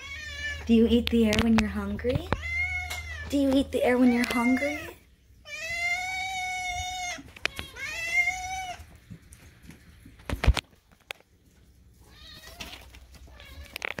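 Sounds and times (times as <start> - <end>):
cat meowing: 4.0 - 8.8.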